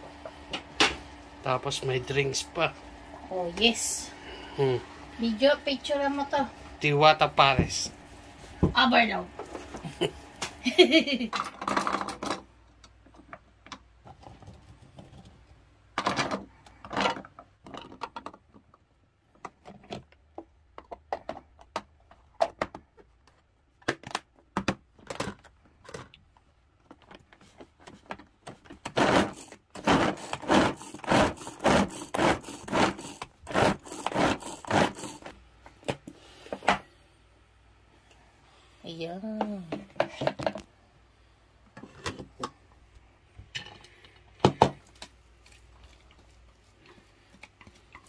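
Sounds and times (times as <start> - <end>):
food chopper cord pulls rattling: 28.7 - 35.4.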